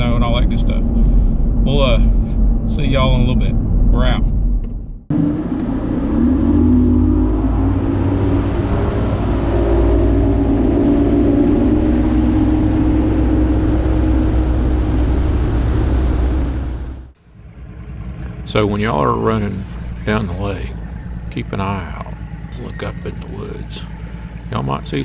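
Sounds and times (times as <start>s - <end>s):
outboard motor running: 5.1s - 25.0s.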